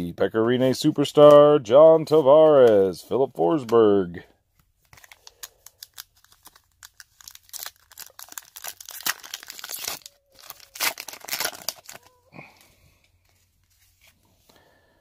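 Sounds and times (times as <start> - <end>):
foil wrapper tearing and crinkling: 4.8 - 12.1.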